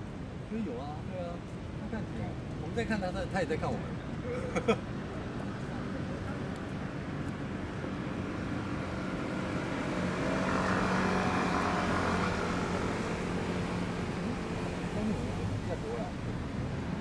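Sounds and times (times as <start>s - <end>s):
passing vehicle engine hum: 3.7s - 17.0s.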